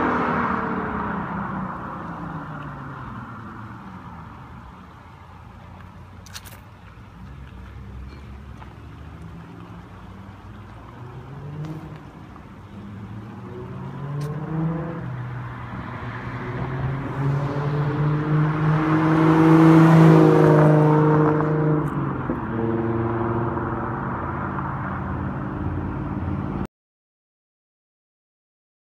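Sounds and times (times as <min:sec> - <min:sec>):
car exhaust accelerating past: 0:10.5 - 0:26.6.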